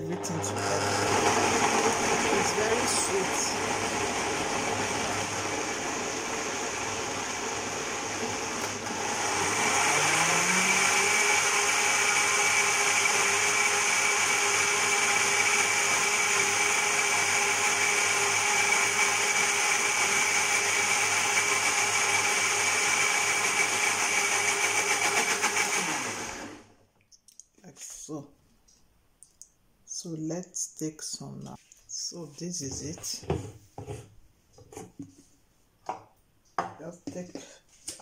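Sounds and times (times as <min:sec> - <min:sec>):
blender running: 0:00.0 - 0:26.7.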